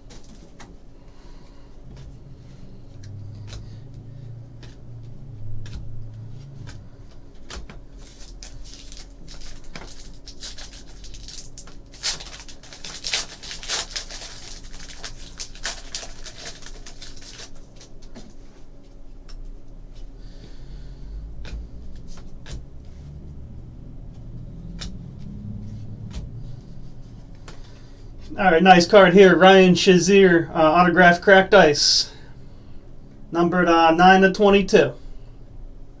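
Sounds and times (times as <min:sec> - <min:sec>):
trading cards shuffled by hand: 0:01.9 - 0:20.1, 0:21.4 - 0:28.4
foil wrapper crinkling and tearing: 0:07.4 - 0:18.3.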